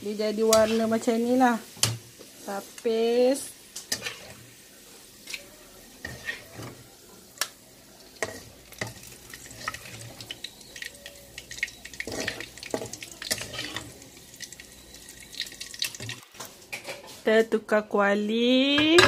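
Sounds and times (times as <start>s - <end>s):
oil sizzling: 0.0s - 17.3s
metal spatula scraping a wok: 0.3s - 2.6s, 3.8s - 7.0s, 8.1s - 10.3s, 12.0s - 14.0s.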